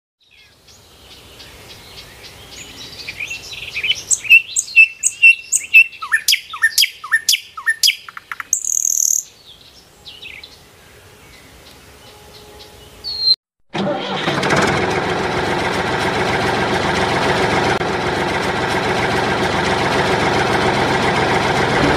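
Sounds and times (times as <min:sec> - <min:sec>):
birds chirping and singing: 0:00.2 - 0:13.4.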